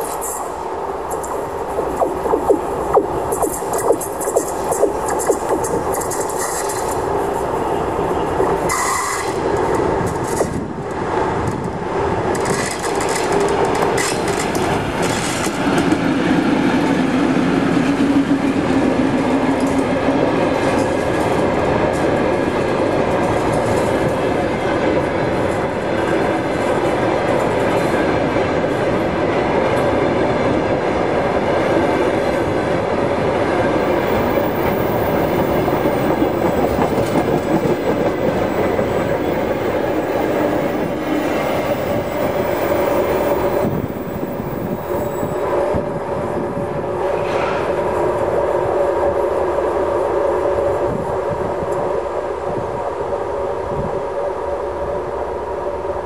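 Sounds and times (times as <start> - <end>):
diesel locomotive passing: 13.3 - 51.0
train wagons rumbling past: 32.3 - 48.4.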